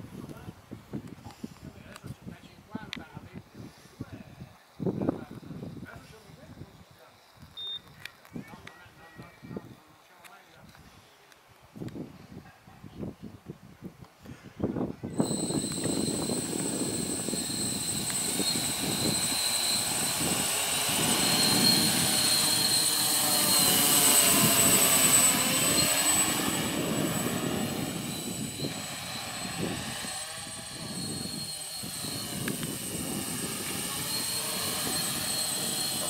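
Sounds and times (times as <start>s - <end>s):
high electric motor whine: 15.1s - 36.0s
rushing propeller wash: 15.2s - 36.0s.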